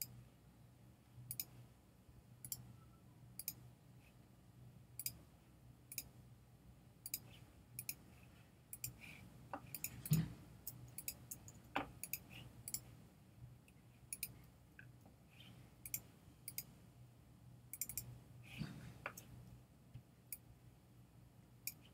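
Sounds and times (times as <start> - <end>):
faint low hum: 0.0 - 21.9
mouse and keyboard clicks: 9.6 - 12.9, 17.8 - 18.1.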